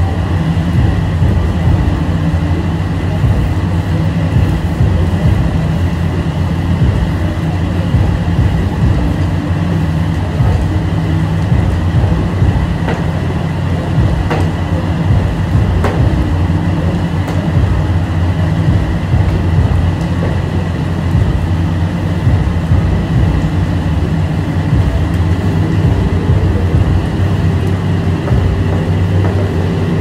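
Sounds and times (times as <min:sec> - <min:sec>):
hand wand washing car: 0:00.0 - 0:30.0
low machine hum: 0:00.0 - 0:30.0.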